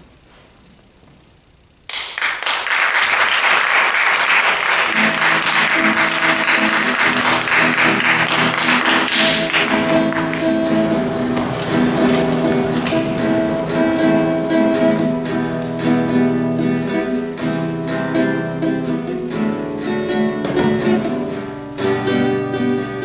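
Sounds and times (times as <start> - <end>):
audience applauding: 1.9 - 15.1
music with plucked guitar: 4.7 - 23.0.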